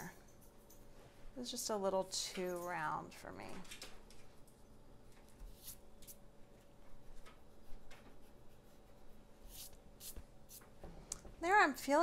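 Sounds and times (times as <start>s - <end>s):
pencil scratching on paper: 5.5s - 6.2s, 7.4s - 10.6s.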